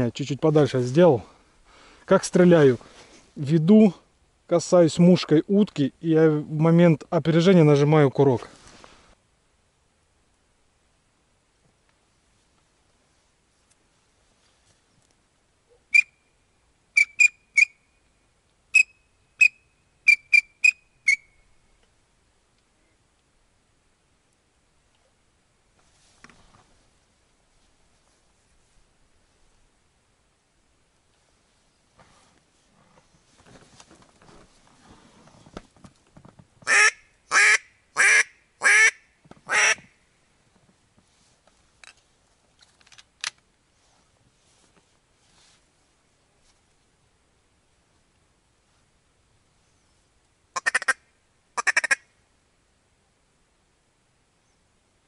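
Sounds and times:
high whistled pips: 15.9s - 16.2s
duck quacking: 36.6s - 39.9s, 50.6s - 51.0s, 51.6s - 52.0s.

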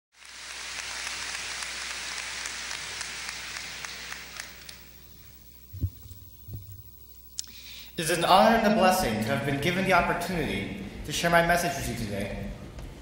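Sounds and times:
audience applause: 0.2s - 5.1s
low thump: 5.8s - 6.8s.

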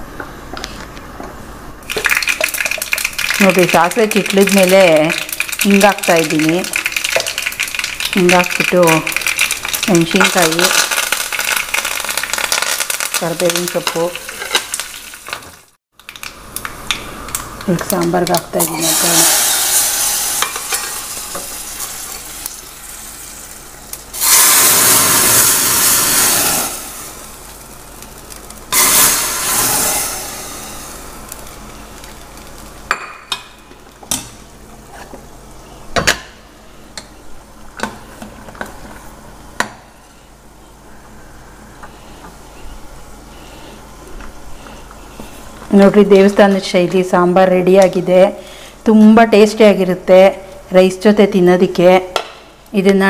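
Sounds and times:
hot oil sizzling: 1.8s - 34.7s.

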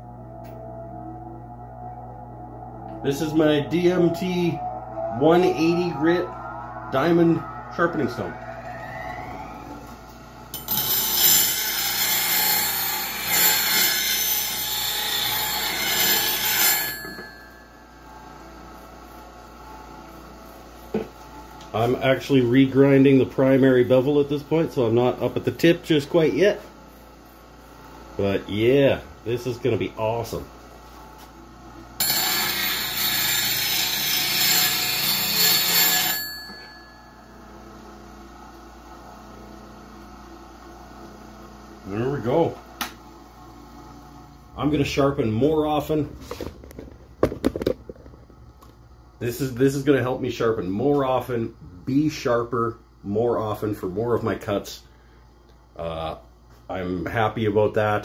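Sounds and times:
metal grinding rasp: 10.6s - 17.4s, 32.0s - 36.4s.

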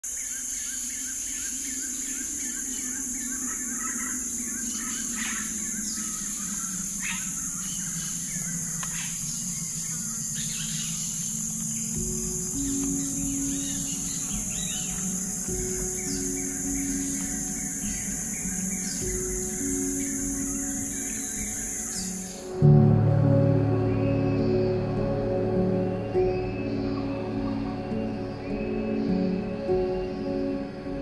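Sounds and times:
birds chirping: 0.0s - 31.0s
insect hum: 0.0s - 31.0s
low held music notes: 1.8s - 31.0s.

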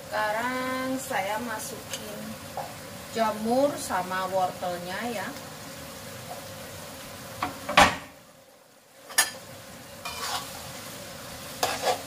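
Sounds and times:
food sizzling in a wok: 0.0s - 12.0s
metal spatula scraping a wok: 10.0s - 10.7s, 11.6s - 12.0s.

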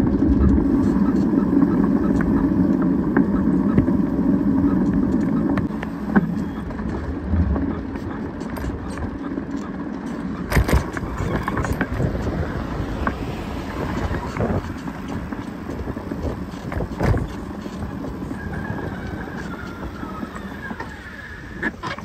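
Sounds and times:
bicycle rolling on asphalt: 0.0s - 22.0s
wind rush: 6.8s - 8.7s, 10.5s - 21.6s.

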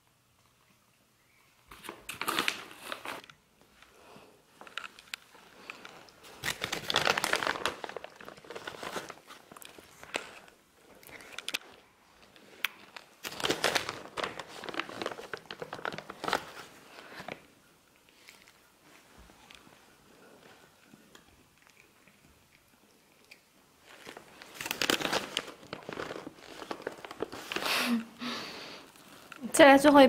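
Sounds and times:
cat crunching food: 20.8s - 27.6s.

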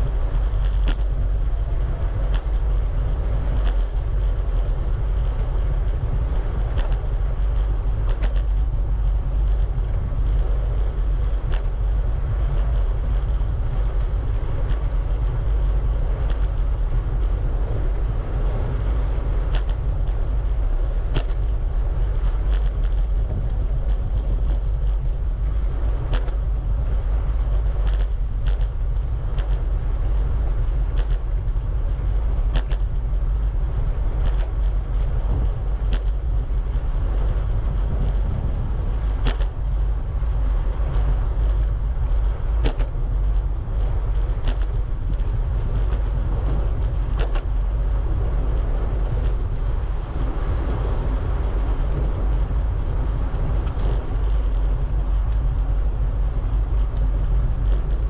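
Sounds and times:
bicycle creaking: 0.0s - 58.0s
wind rushing over microphone: 0.0s - 58.0s.

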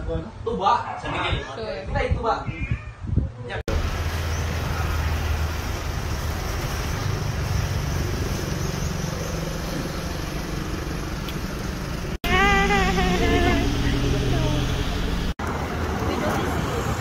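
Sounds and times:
vehicle engine hum: 3.7s - 17.0s
person speaking: 12.2s - 14.8s.

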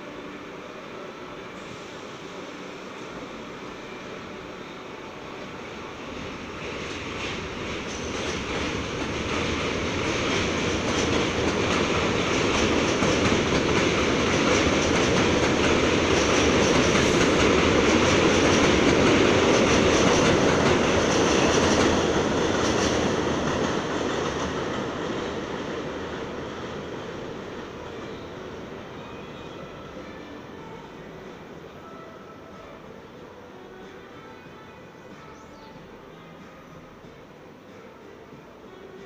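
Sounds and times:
train wheels rumbling and clattering: 6.0s - 28.0s.

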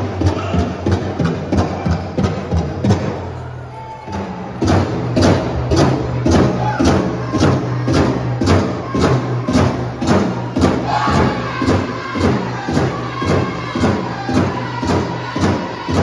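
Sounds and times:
steady drumbeat: 0.0s - 3.4s, 4.1s - 16.0s
voices chanting: 3.4s - 16.0s.

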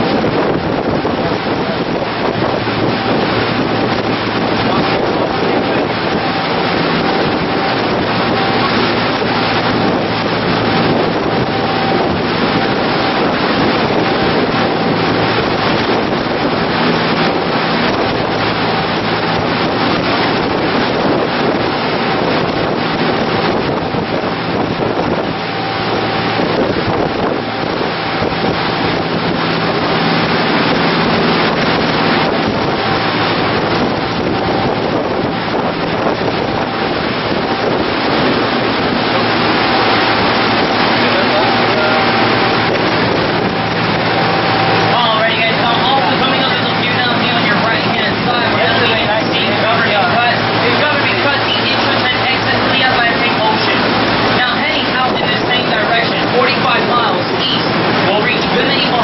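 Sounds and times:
boat engine drone: 0.0s - 59.0s
water rushing in wake: 0.0s - 59.0s
wind buffeting microphone: 0.0s - 59.0s.

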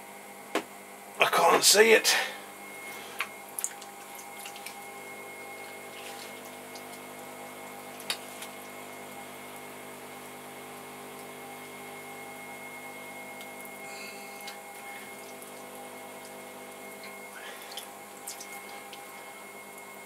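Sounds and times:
potter's wheel motor humming: 0.0s - 20.0s
wet hands squelching clay: 2.9s - 4.9s.

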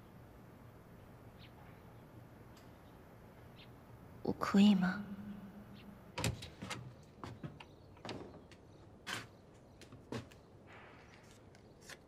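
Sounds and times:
door knocks and clicks: 6.2s - 8.6s.

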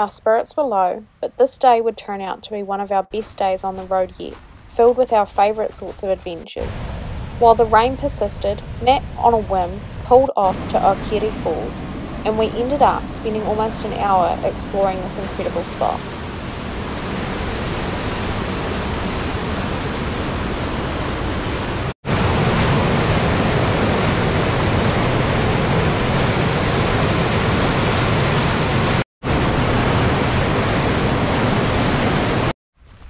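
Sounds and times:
waterfall rushing: 12.6s - 32.5s.

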